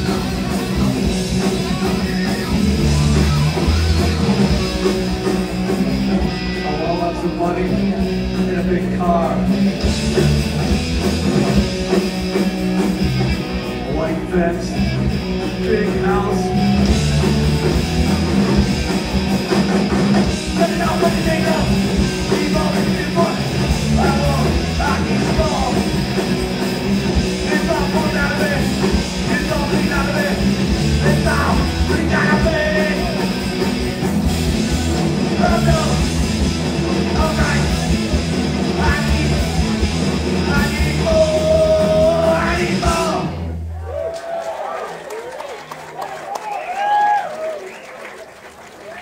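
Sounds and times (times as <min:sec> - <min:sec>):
punk band playing: 0:00.0 - 0:44.4
man shouting vocals: 0:15.6 - 0:17.0, 0:20.5 - 0:25.9, 0:27.4 - 0:33.2, 0:35.4 - 0:36.1, 0:40.4 - 0:43.4.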